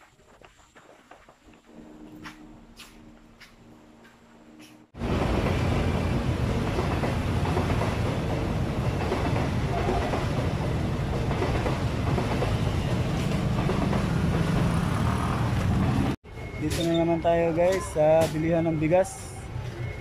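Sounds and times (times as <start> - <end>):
train passing rumble: 0.8 - 16.2.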